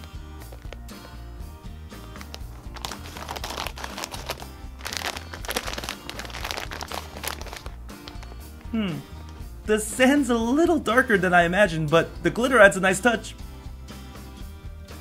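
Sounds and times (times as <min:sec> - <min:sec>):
background music: 0:00.0 - 0:15.0
plastic packet crinkling: 0:02.1 - 0:08.3.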